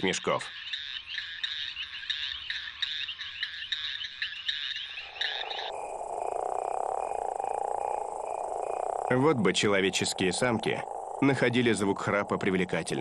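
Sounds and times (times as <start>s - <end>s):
high chirping calls: 0.0s - 13.0s
toad pulsing snore call: 5.1s - 13.0s.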